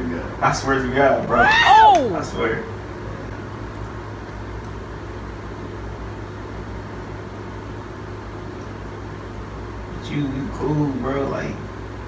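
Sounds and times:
tower fan humming: 0:00.0 - 0:12.0.

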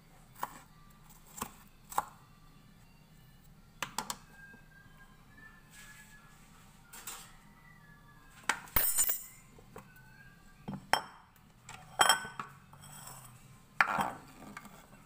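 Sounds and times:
bowl and knife clinking: 0:11.9 - 0:13.1.

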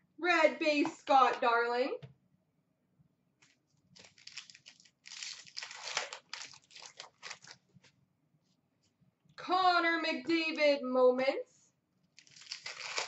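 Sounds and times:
trading cards rustling: 0:03.4 - 0:07.6, 0:12.2 - 0:13.0.

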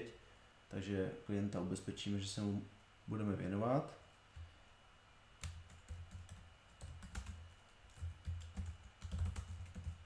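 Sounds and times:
typing on computer keyboard: 0:05.4 - 0:10.0.

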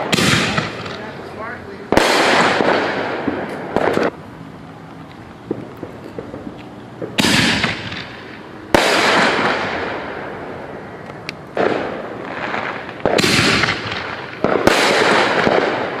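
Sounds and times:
firework shells bursting: 0:04.9 - 0:16.0
small firework pops: 0:05.4 - 0:08.1.

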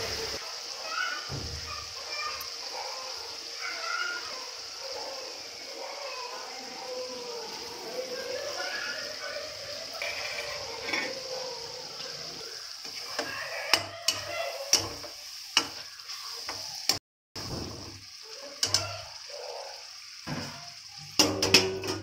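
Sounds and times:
tomatoes sizzling in oil: 0:00.0 - 0:22.0
metal spatula scraping pan: 0:10.0 - 0:11.3.

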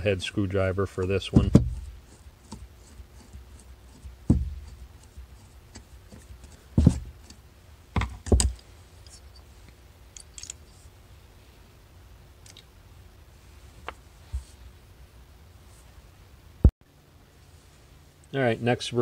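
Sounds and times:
metal tools clicking and knocking: 0:10.1 - 0:10.7.

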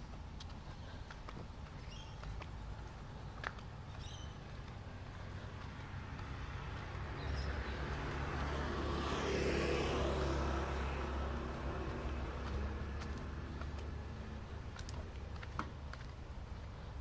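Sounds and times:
car passing by: 0:05.4 - 0:14.6.

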